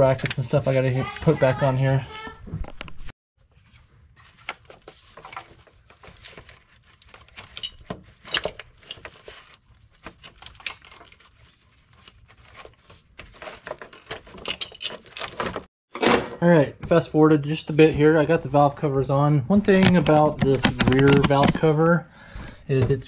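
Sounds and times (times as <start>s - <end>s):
metal parts and tools clinking: 7.1s - 11.2s, 13.7s - 15.7s.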